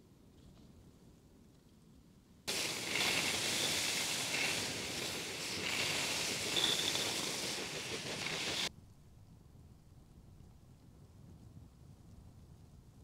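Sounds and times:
steady rushing hiss: 0:02.5 - 0:08.7.

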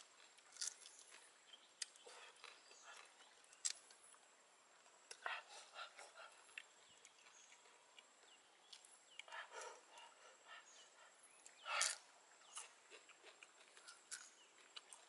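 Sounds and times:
crab shell crunching: 0:00.2 - 0:01.2.

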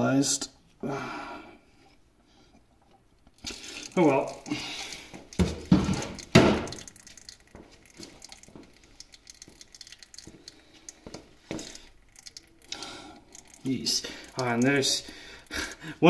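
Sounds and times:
oil pattering and dripping into bucket: 0:03.2 - 0:16.0
splashing clatters: 0:03.4 - 0:15.5.

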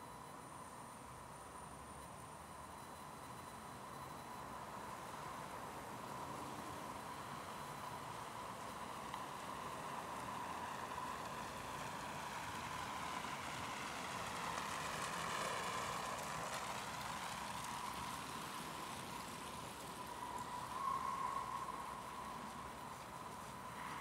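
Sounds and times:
steady city hum: 0:00.0 - 0:24.0
vehicle passing: 0:08.9 - 0:24.0.

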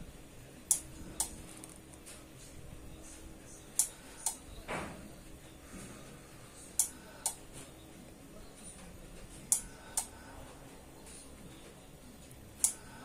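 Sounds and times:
amplifier power supply clicking: 0:00.7 - 0:01.4, 0:06.8 - 0:07.4.

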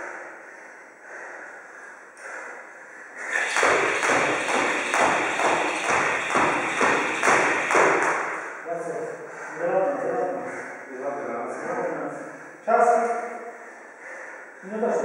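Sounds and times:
heavy breathing: 0:00.0 - 0:15.0
skipping rope slapping floor: 0:03.2 - 0:08.6.

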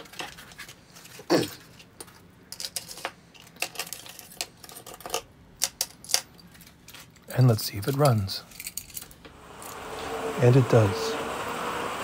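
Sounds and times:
metal parts and tools clinking: 0:00.0 - 0:09.2.

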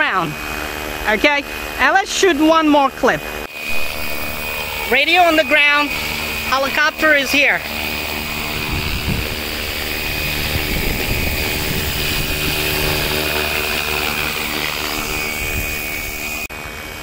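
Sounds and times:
high whine: 0:00.0 - 0:17.0
rc helicopter rotors droning: 0:00.0 - 0:17.0.

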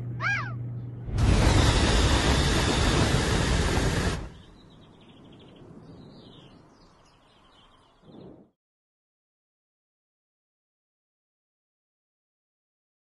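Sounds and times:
faint outdoor ambience: 0:00.0 - 0:08.5
flamethrower flame rushing: 0:01.1 - 0:04.8.

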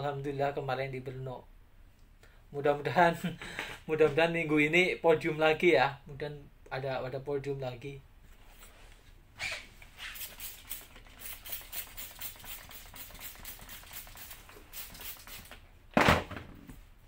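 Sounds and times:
spray bottle squirts: 0:09.4 - 0:15.6.

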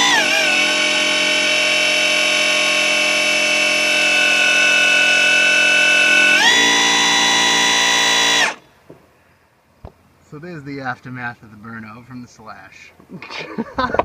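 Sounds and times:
electric motor whining: 0:00.0 - 0:08.6.

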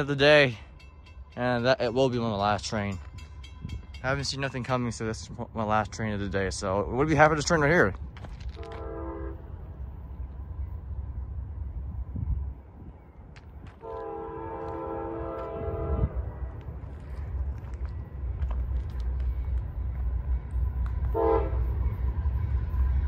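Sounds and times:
freight train rumble: 0:00.0 - 0:23.0
locomotive air horn: 0:08.5 - 0:09.5, 0:13.8 - 0:16.3, 0:21.0 - 0:21.8.

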